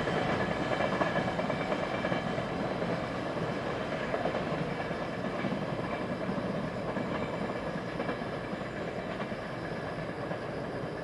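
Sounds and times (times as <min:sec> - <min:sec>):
train wheels rumbling on track: 0:00.0 - 0:11.0.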